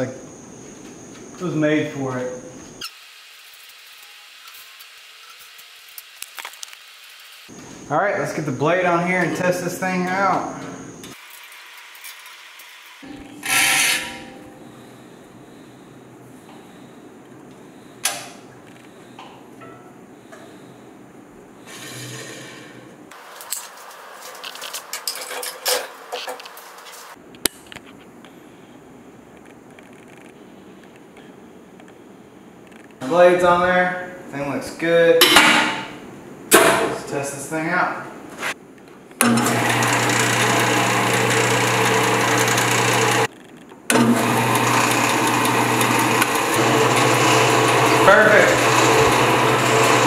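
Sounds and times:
bandsaw running: 0:13.4 - 0:14.4, 0:39.3 - 0:43.3, 0:43.9 - 0:50.0.

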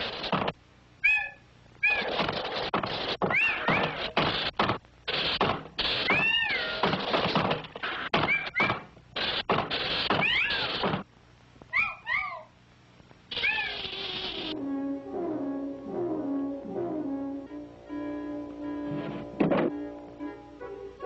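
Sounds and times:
squeaky meow-like tone: 0:01.0 - 0:02.1, 0:03.3 - 0:04.0, 0:06.0 - 0:06.8, 0:08.3 - 0:08.8, 0:10.1 - 0:10.8, 0:11.7 - 0:12.5, 0:13.3 - 0:14.6
cartoon hiss bursts: 0:01.9 - 0:07.2, 0:09.2 - 0:11.0, 0:13.3 - 0:14.6.

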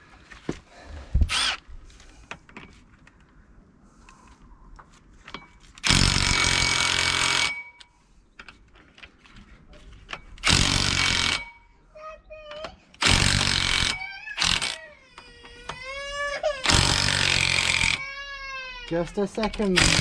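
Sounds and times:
impact wrench hammering: 0:10.4 - 0:11.6, 0:13.0 - 0:14.8, 0:16.6 - 0:18.1, 0:19.6 - 0:20.0.

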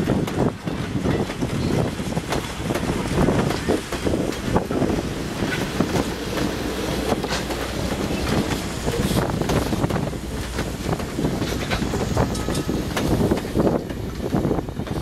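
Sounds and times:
train wheels clicking over rail joints: 0:00.0 - 0:15.0
wind buffeting microphone: 0:00.0 - 0:15.0.

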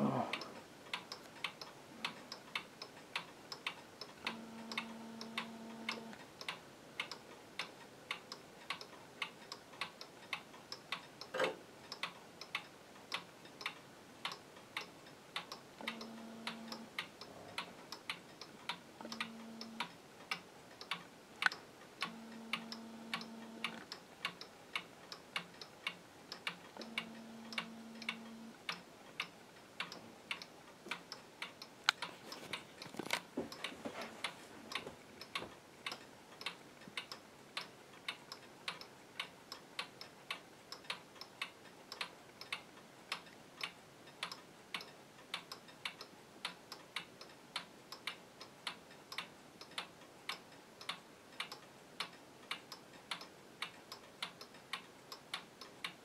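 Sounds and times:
faint low hum: 0:00.0 - 0:10.3, 0:11.3 - 0:39.6
wall clock ticking: 0:00.0 - 0:56.0.

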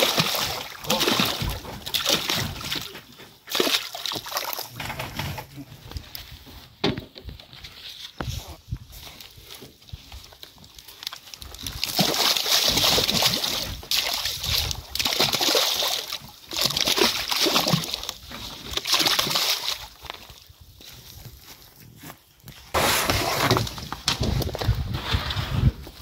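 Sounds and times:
fish splashing in water: 0:00.0 - 0:02.9, 0:03.5 - 0:04.7, 0:11.6 - 0:20.0.

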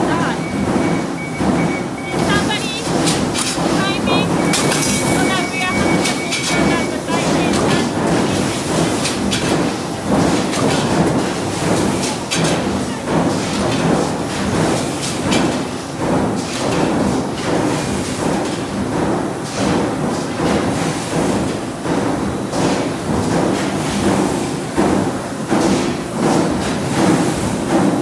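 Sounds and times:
machinery rumble: 0:00.0 - 0:13.2.

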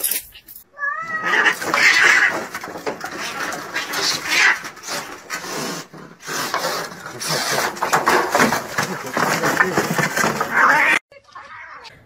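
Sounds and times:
cat yowling: 0:00.7 - 0:02.4
cat hissing and snarling: 0:01.0 - 0:08.1.

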